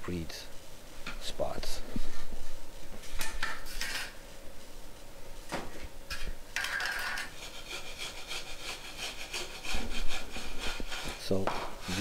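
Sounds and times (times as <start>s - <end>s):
wooden float scraping mortar: 6.6s - 12.0s.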